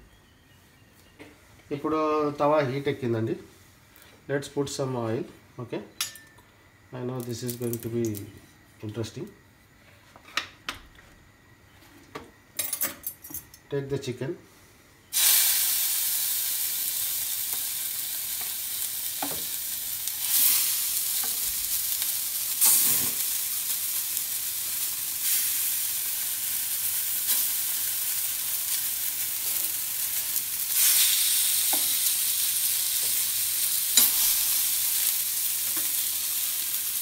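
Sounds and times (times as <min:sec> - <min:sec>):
chicken sizzling in hot oil: 0:15.1 - 0:37.0.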